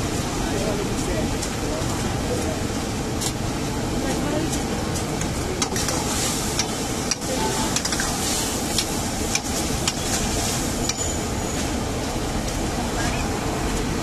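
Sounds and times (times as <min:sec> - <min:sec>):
steady rushing noise: 0:00.0 - 0:14.0
oil sizzling: 0:04.7 - 0:11.8
metal ladle scraping wok: 0:05.6 - 0:11.3.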